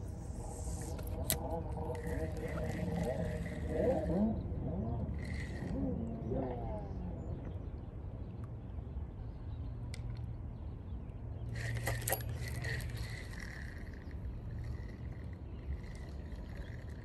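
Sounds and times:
fishing line whining off reel: 0.0s - 6.8s, 11.5s - 17.0s
steady low rumble: 0.0s - 8.2s.

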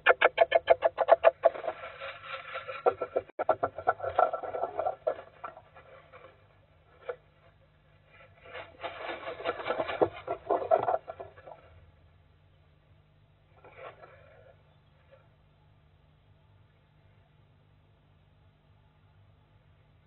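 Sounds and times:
owl scratching in wood shavings: 0.0s - 6.4s, 8.0s - 11.7s.

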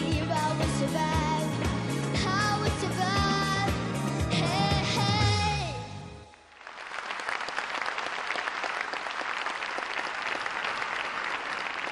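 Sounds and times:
girl singing with vibrato: 0.0s - 6.0s
audience applauding: 6.4s - 11.9s.

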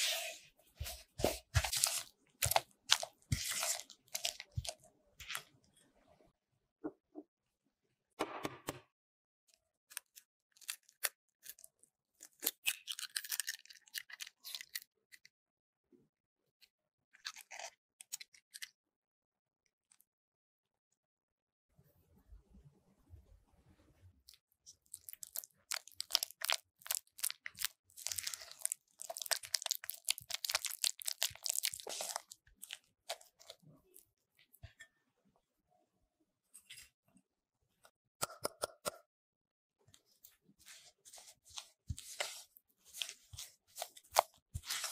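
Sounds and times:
eggshell crackling: 24.8s - 33.6s.

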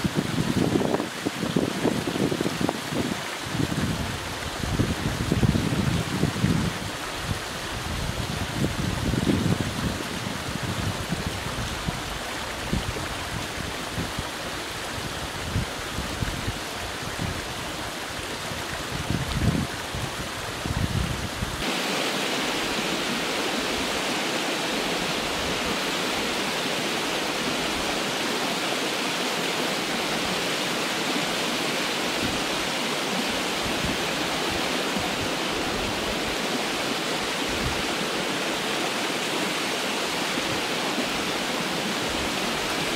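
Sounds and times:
small waterfall rushing: 0.0s - 42.9s
stream running over rocks: 0.0s - 42.9s.

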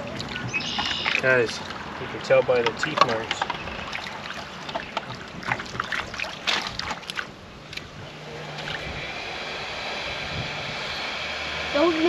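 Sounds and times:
light clicks and knocks: 2.2s - 3.6s
wind rushing on microphone: 5.1s - 12.0s.

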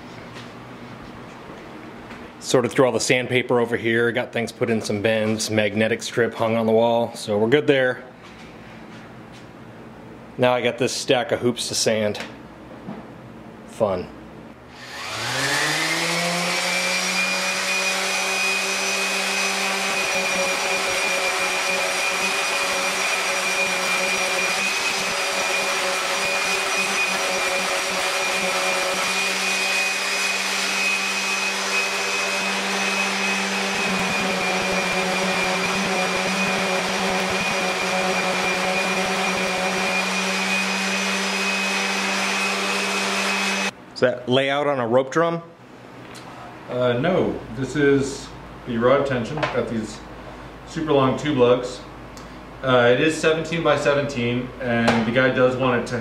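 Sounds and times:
orbital sander whining: 14.7s - 43.8s
vacuum dust extractor: 14.7s - 43.8s.

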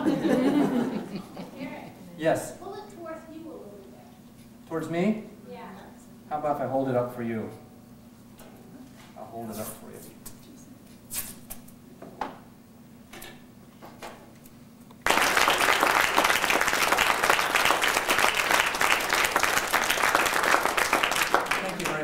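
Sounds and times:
audience applause: 15.0s - 22.0s.

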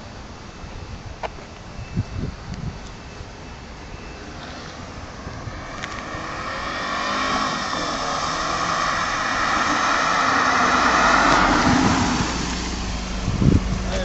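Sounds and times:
car engine approaching: 3.2s - 14.0s.

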